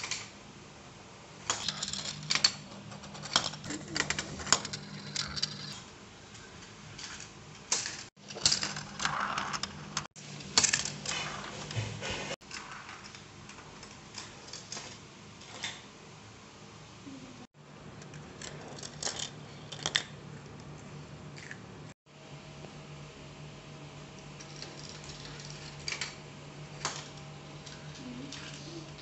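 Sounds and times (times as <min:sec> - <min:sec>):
marbles clattering in plastic run: 0:07.8 - 0:11.0.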